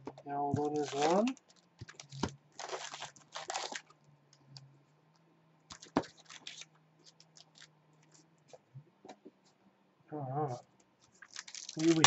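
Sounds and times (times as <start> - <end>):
faint low hum: 0.0 - 12.0
foil packs crinkling: 0.6 - 3.9, 5.7 - 7.7, 11.2 - 12.0.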